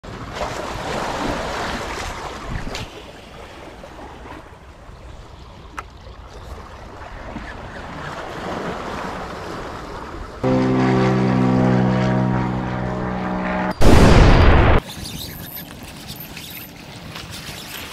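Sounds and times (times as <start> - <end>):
small waves lapping on rocks: 0.1 - 10.4.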